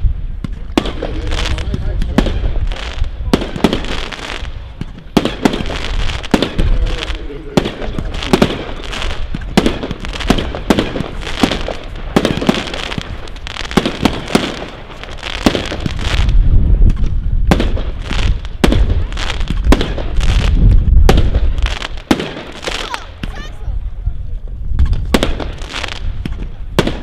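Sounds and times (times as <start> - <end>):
firework cracks: 0.0 - 23.5, 24.7 - 27.0
heavy low rumble: 18.6 - 21.6.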